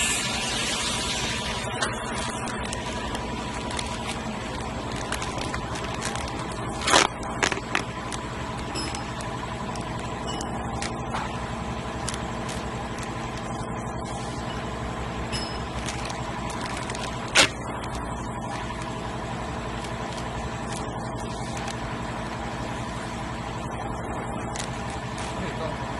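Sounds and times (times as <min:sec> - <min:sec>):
machinery humming: 0:00.0 - 0:25.9
sharp crack: 0:15.7 - 0:18.0.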